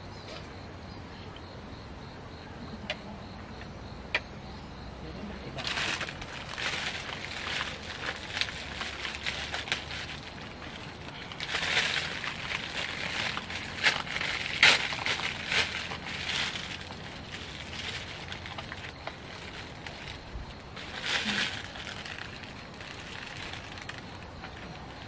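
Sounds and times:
plastic bag crinkling: 5.6s - 25.0s.

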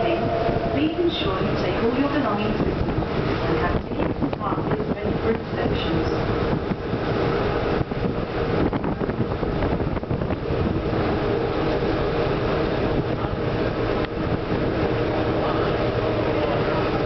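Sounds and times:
boat engine droning: 0.0s - 17.0s
rushing water: 0.0s - 17.0s.

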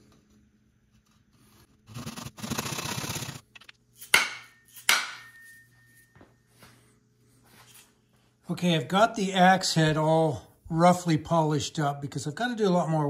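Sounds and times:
handsaw cutting wood: 1.8s - 3.4s
sharp knocks with metallic ring: 4.1s - 6.1s.

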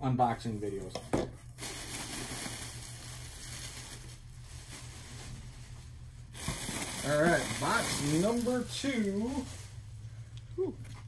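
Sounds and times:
cardboard rustling and scraping: 3.3s - 9.9s.

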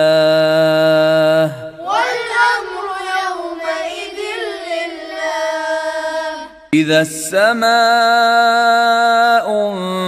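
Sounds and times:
man reciting: 0.0s - 1.9s, 6.6s - 10.0s
children chanting: 1.7s - 6.7s.

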